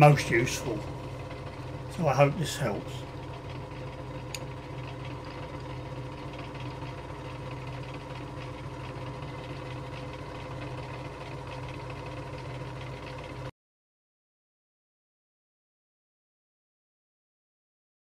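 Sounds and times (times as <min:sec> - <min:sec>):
lathe motor humming: 0:00.0 - 0:13.5
small click: 0:04.3 - 0:04.5.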